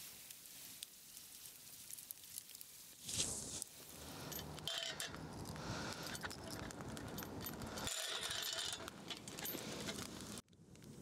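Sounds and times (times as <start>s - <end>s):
metal chain rattling and clinking: 4.0s - 10.1s.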